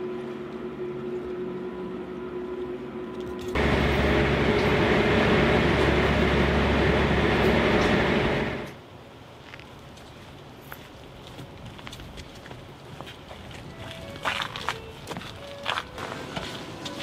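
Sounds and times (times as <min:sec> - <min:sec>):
ferry engine hum: 0:00.0 - 0:08.8
low engine rumble: 0:03.5 - 0:08.8.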